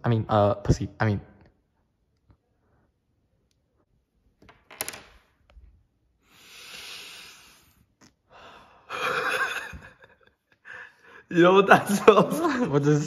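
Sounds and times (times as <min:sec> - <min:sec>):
sniffing inhale through nose: 0:06.2 - 0:07.9
person laughing: 0:08.9 - 0:10.9.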